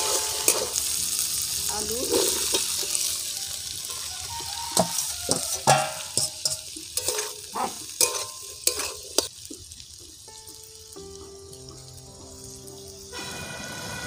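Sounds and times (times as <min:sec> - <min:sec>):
metal spatula scraping a wok: 0:00.0 - 0:09.4
food frying sizzle: 0:00.0 - 0:14.0.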